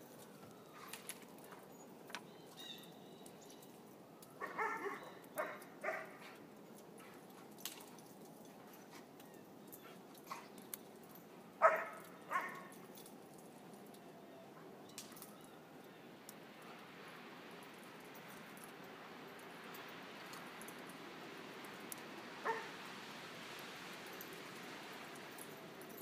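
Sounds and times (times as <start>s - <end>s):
dogs giving short play barks: 4.4s - 6.3s.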